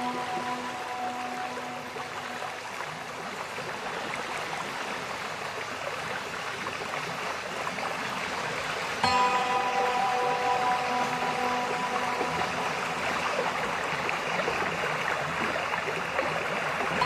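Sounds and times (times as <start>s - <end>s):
sustained music chord: 0.0s - 3.3s, 9.0s - 15.4s
flowing stream water: 0.0s - 17.0s.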